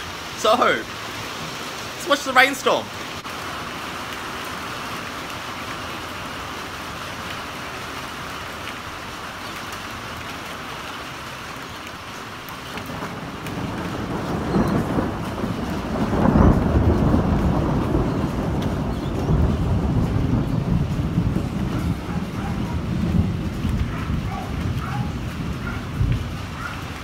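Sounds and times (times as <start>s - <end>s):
steady rain falling: 0.0s - 27.0s
low rumble of thunder: 12.6s - 27.0s.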